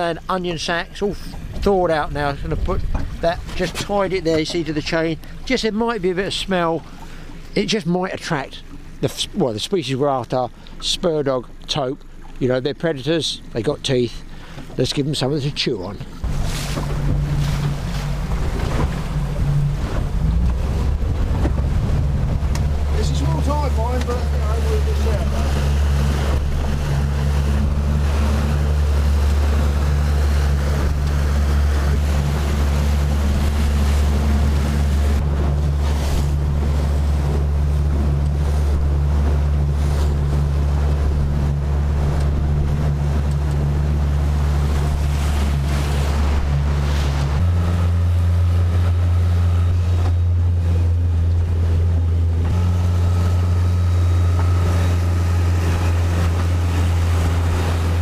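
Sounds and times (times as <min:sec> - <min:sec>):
hull wash: 0:00.0 - 0:58.0
outboard engine drone: 0:00.0 - 0:58.0
wind buffeting microphone: 0:01.4 - 0:05.5, 0:16.2 - 0:58.0.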